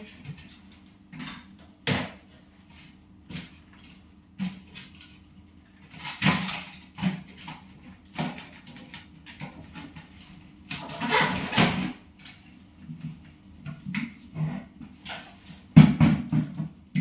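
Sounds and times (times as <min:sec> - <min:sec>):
appliances knocking on wooden shelf: 0:15.7 - 0:17.0.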